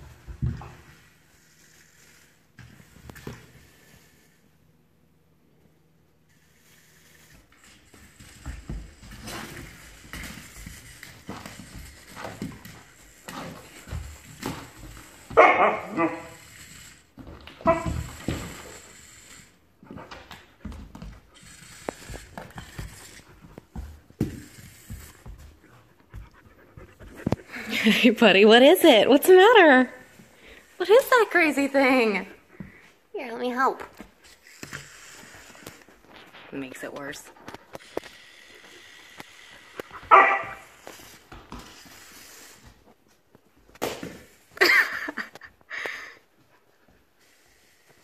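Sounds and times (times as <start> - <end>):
toy motor and plastic legs clicking: 6.3 - 19.6, 21.0 - 23.3, 34.2 - 35.9, 36.8 - 40.0
puppy barking: 15.4 - 16.3, 40.1 - 40.6.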